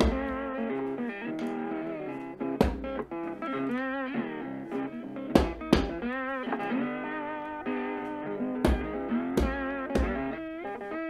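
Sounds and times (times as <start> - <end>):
blues guitar music: 0.0 - 11.0
rubber mallet knocking steel rail: 5.4 - 6.0.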